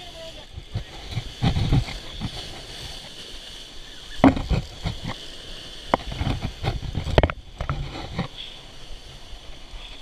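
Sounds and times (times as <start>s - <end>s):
heavy thuds and splashes: 0.0s - 3.4s, 4.2s - 8.3s
surf breaking against rocks: 0.0s - 10.0s.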